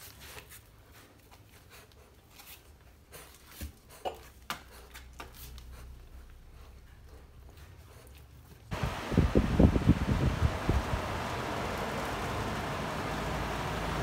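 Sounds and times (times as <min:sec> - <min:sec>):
low steady hum: 0:05.9 - 0:14.0.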